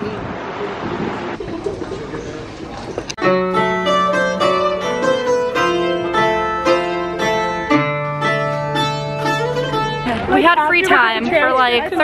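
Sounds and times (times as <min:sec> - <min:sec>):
plucked guitar melody: 0:03.2 - 0:12.0.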